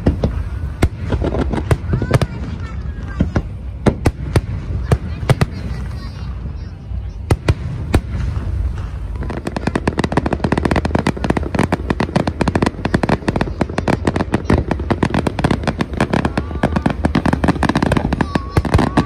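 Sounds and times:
fireworks bangs and crackle: 0.0 - 19.0.

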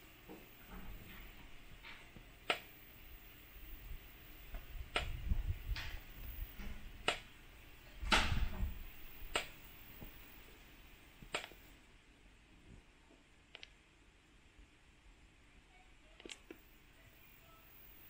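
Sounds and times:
sharp clicks: 2.4 - 2.8, 4.5 - 7.3, 9.1 - 10.2, 11.2 - 11.7, 13.5 - 13.8
low rumble: 3.0 - 10.5.

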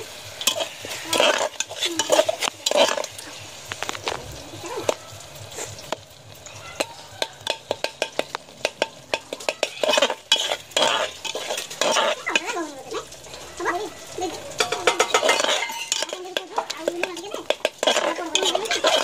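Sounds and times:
masala sizzling: 0.0 - 19.0
spoon scraping pot: 0.4 - 4.2, 6.8 - 13.2, 14.5 - 19.0
spoon clicking against pot: 6.8 - 10.0.

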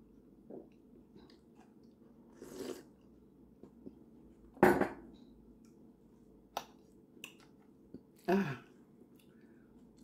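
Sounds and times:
ceramic mug knocking on table: 4.6 - 5.0.

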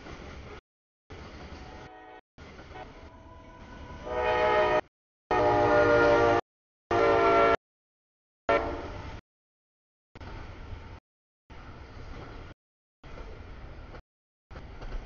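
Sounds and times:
low rumble of train: 0.0 - 7.6, 8.5 - 9.2, 10.2 - 15.0
locomotive air horn blasts: 1.6 - 2.2, 4.0 - 7.6, 8.5 - 9.0.

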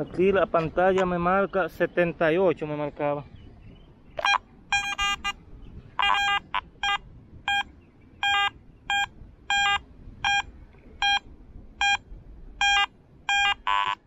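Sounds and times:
metal detector short beeps: 4.2 - 5.4, 6.0 - 12.0, 12.6 - 14.0.

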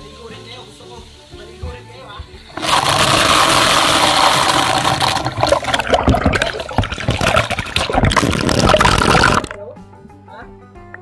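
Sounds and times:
water pouring over person bathing: 2.5 - 9.6
sharp water splashes: 2.6 - 9.5.

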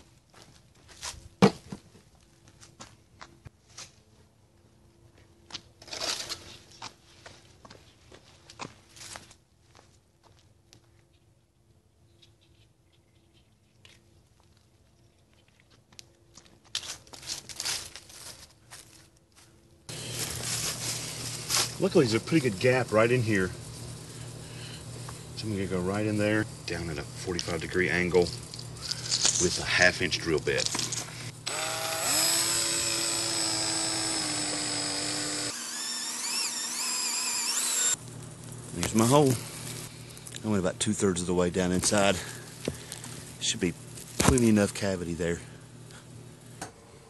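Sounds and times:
footsteps crunching through dry leaves: 0.0 - 1.3, 6.4 - 10.5, 16.3 - 26.0, 27.2 - 31.3, 38.0 - 44.7
steady rustle: 16.8 - 31.4
cordless drill boring into wood: 30.7 - 38.0.

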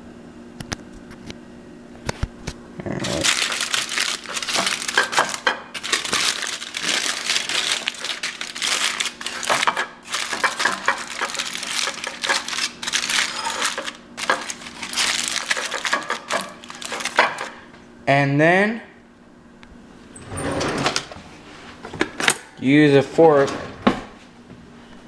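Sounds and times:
aluminium foil crinkling: 3.0 - 17.6.

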